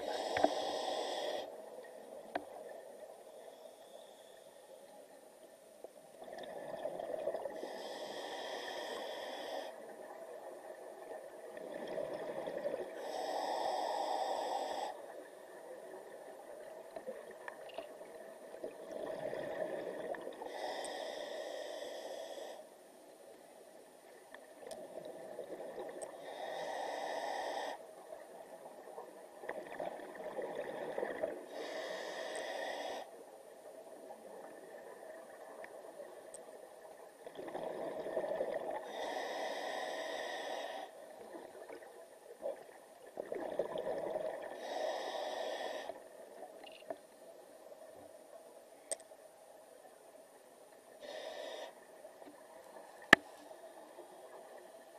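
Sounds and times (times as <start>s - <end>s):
diver regulator breathing hiss: 0.0s - 1.8s, 3.1s - 4.8s, 7.3s - 10.1s, 12.1s - 15.3s, 20.4s - 22.8s, 26.1s - 28.0s, 31.5s - 33.2s, 38.2s - 41.4s, 44.5s - 46.2s, 51.0s - 52.0s
exhaled bubbles underwater: 43.2s - 44.5s.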